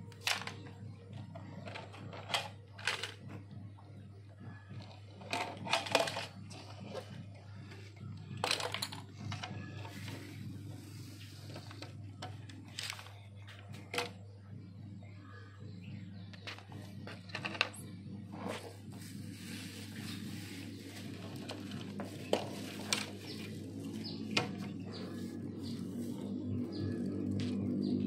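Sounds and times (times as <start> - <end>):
plastic toy cars clattering: 0.0 - 3.5, 4.8 - 10.4, 11.4 - 14.2, 16.4 - 18.8, 19.4 - 27.4.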